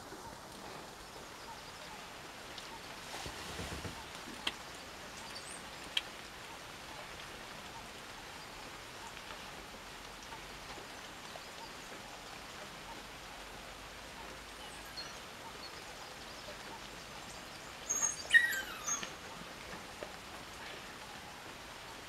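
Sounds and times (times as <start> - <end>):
steady outdoor hiss: 0.0 - 22.0
high chirping calls: 17.8 - 19.1.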